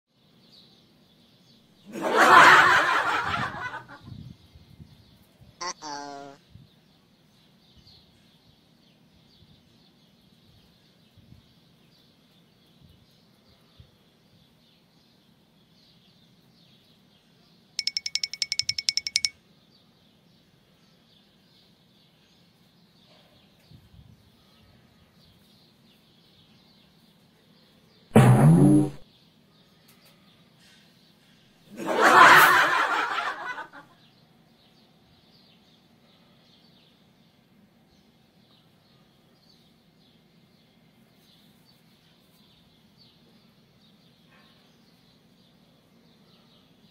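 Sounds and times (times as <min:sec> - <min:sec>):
faint background noise: 0:00.1 - 0:46.9
snickering giggle: 0:01.9 - 0:04.1, 0:31.7 - 0:33.9
rapid high-pitched trill: 0:17.8 - 0:19.3
faint bird chirping: 0:17.8 - 0:31.6, 0:33.2 - 0:46.9.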